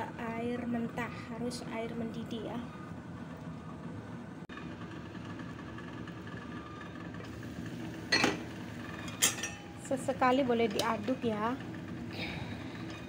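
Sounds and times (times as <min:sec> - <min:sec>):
gas burner rumble: 0:00.0 - 0:13.0
clink on pot: 0:09.1 - 0:09.7.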